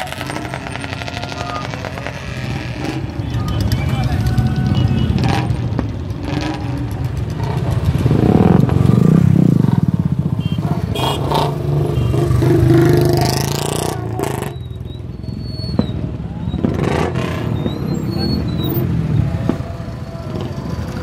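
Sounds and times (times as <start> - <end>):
cars and motorcycles driving past: 0.0 - 21.0.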